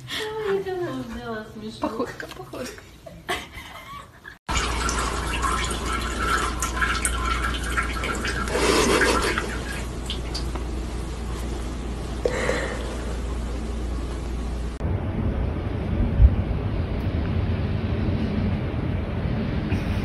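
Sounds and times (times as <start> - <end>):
liquid trickling into toilet bowl: 4.5 - 11.0
steady low hum: 4.7 - 20.0.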